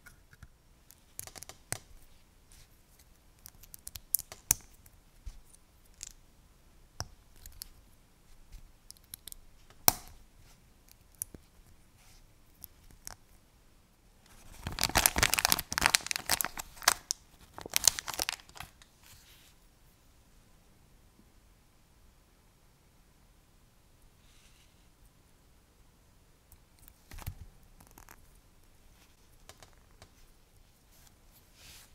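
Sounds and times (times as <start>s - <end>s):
sticker sheet crinkling: 14.3s - 18.8s.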